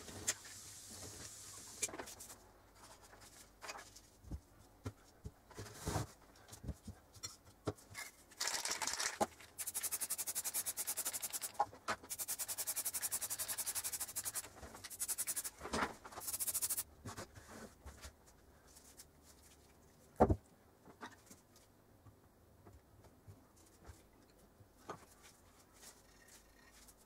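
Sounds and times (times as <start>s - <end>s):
spray paint can hissing: 9.6s - 15.5s, 16.2s - 16.8s.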